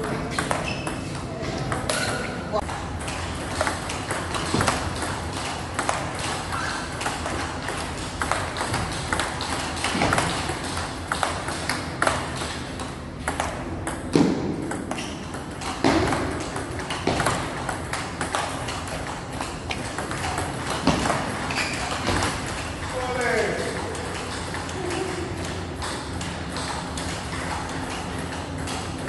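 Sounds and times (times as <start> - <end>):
table tennis ball clicking: 1.7 - 22.8.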